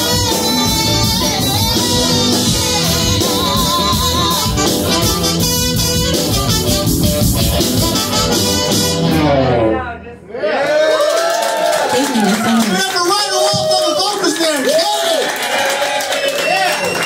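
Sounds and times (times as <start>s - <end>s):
woman singing lead: 0.0s - 5.1s
funk rock band playing: 0.0s - 10.0s.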